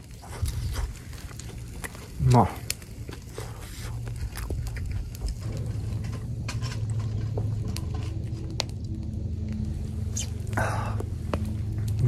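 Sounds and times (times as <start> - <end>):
close-up chewing: 0.0 - 9.6
steady low rumble: 0.0 - 12.0.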